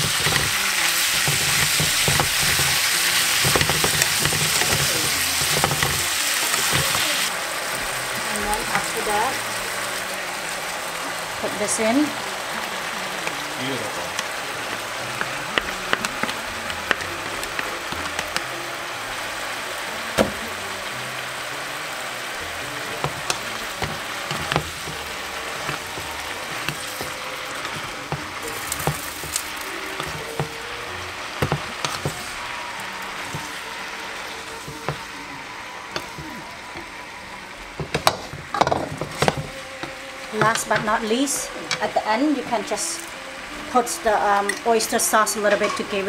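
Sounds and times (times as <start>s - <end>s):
wooden spatula scraping a pan: 0.0s - 7.3s, 22.8s - 35.2s, 35.9s - 37.0s, 37.7s - 44.8s
food sizzling in a frying pan: 0.0s - 46.0s.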